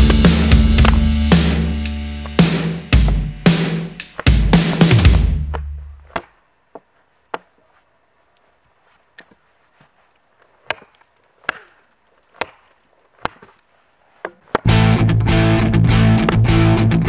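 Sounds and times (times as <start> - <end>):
tomahawk chopping into log: 2.2 - 6.4, 10.6 - 13.6, 14.2 - 14.7.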